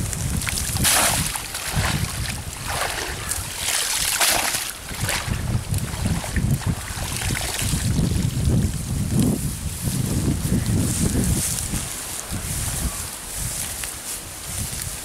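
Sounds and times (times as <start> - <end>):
wind rumble on microphone: 0.0 - 15.0
water splashing: 0.3 - 8.2.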